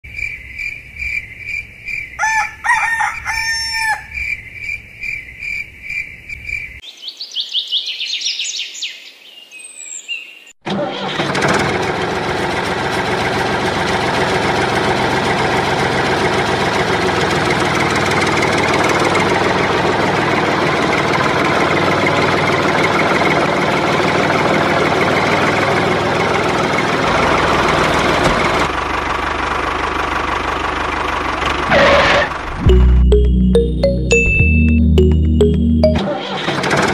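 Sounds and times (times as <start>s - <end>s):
rooster crowing: 2.2s - 4.4s
steady engine sound: 10.7s - 36.9s
steady pulsing beep: 32.6s - 36.0s.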